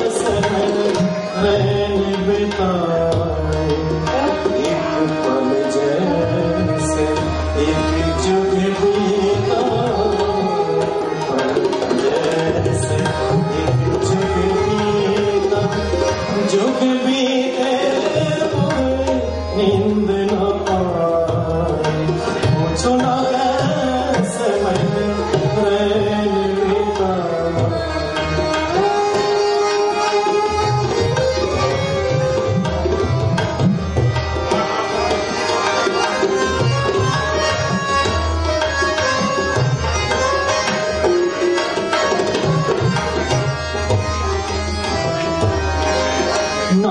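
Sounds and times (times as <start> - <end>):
harmonium melody: 0.0 - 46.9
tabla strokes: 0.0 - 46.9.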